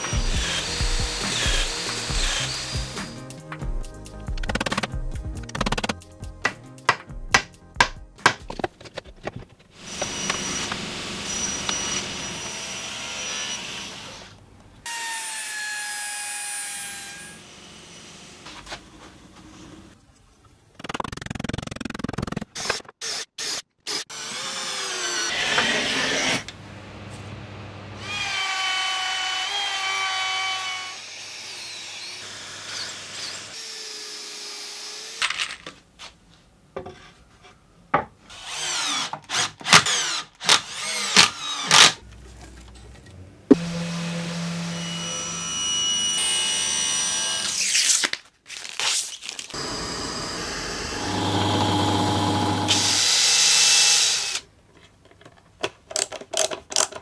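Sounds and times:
cordless drill drilling into wood: 0:00.0 - 0:03.1, 0:09.8 - 0:14.3, 0:49.5 - 0:54.4.

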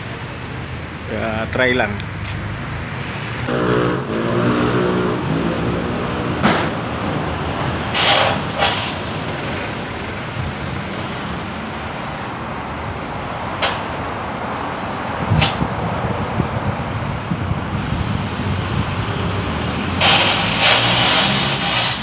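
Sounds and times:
steady background noise: 0:00.0 - 0:22.0.

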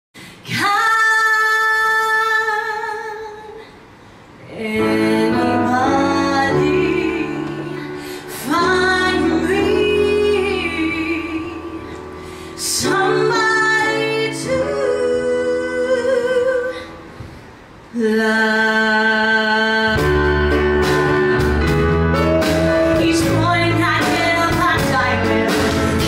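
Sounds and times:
woman singing: 0:00.4 - 0:03.7, 0:04.4 - 0:17.0, 0:17.9 - 0:26.0
sustained instrumental accompaniment: 0:20.0 - 0:26.0.

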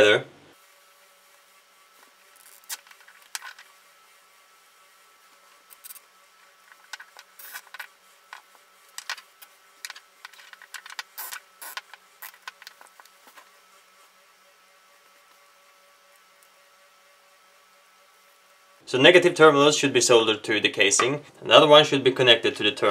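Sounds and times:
cable ties zipping tight: 0:02.4 - 0:03.6, 0:06.8 - 0:07.9, 0:10.3 - 0:12.9.

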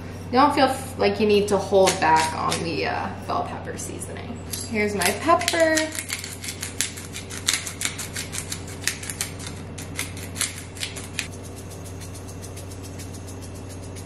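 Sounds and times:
pepper grinder clicking: 0:01.8 - 0:02.7, 0:04.9 - 0:14.0.

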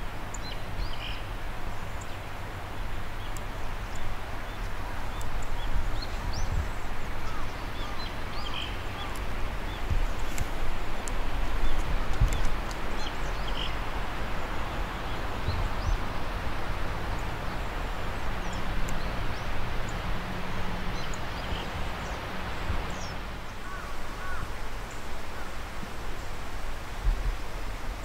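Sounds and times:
low bird calls: 0:04.4 - 0:10.4, 0:20.9 - 0:25.6.

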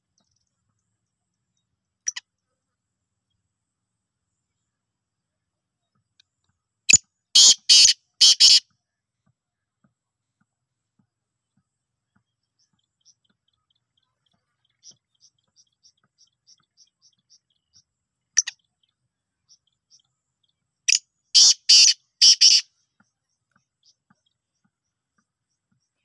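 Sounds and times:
francolin harsh calls: 0:07.4 - 0:08.6, 0:20.9 - 0:22.7.

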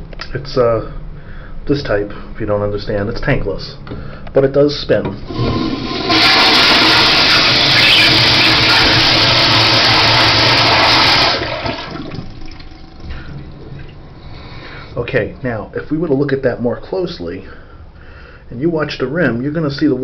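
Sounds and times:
water swirling down drain: 0:05.2 - 0:14.5
toilet flushing: 0:05.2 - 0:14.8.

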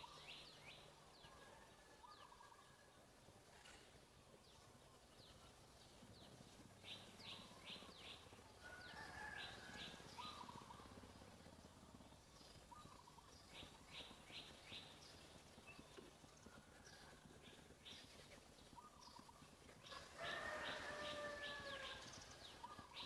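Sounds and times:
faint bird chirps: 0:00.0 - 0:04.0, 0:04.6 - 0:23.0
low steady hum: 0:00.0 - 0:23.0.

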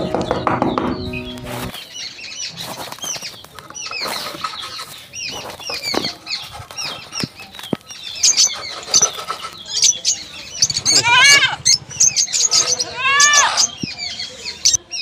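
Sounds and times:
high bird chirps: 0:00.0 - 0:15.0
trowel scraping sand: 0:01.4 - 0:01.8.

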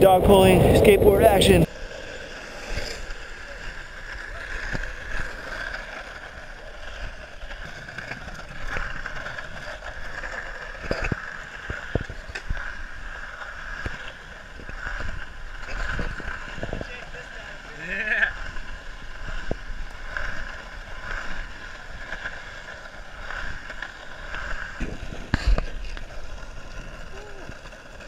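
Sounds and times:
wheels clicking over pavement cracks: 0:00.0 - 0:28.0
wheels rolling over asphalt: 0:00.0 - 0:28.0.

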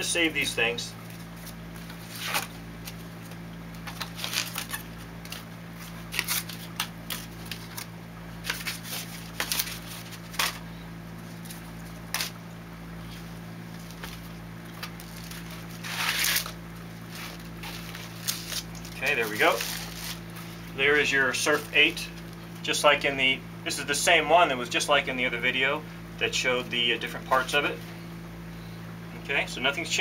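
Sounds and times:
rustling scrape on foam: 0:15.2 - 0:20.4.

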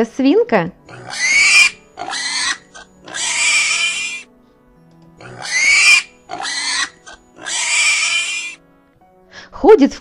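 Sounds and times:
quiet background music: 0:00.0 - 0:10.0
pig calls: 0:00.9 - 0:04.3, 0:05.2 - 0:08.6.

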